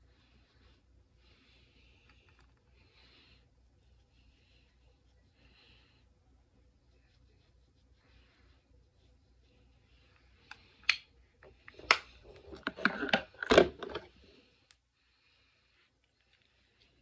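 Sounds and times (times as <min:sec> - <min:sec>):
makeup items clicking and knocking: 0:11.6 - 0:14.1.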